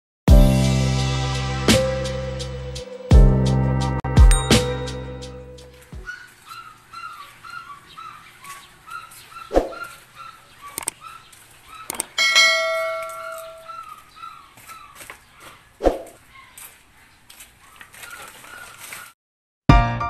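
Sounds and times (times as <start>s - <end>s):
bell-like metallic ring: 4.3s - 5.0s, 12.2s - 13.7s
bird chirping: 6.0s - 12.2s, 12.8s - 18.8s.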